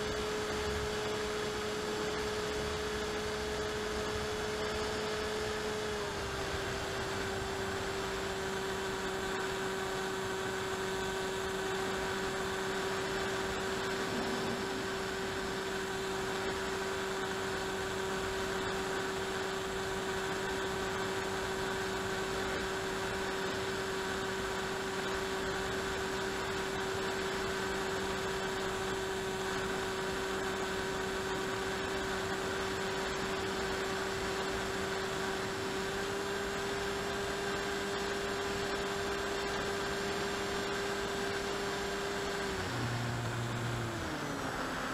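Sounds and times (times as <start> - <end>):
electric motor and propeller whine: 0.0 - 44.9.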